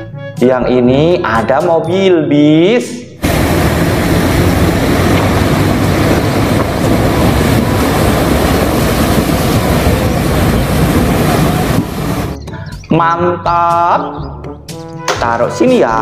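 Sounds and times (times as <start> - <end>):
vehicle rushing and rumbling: 3.2 - 12.9.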